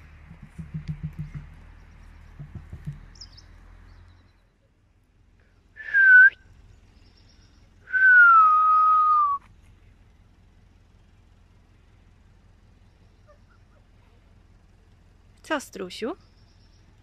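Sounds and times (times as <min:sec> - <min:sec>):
person whistling: 0:05.8 - 0:06.4, 0:07.9 - 0:09.4.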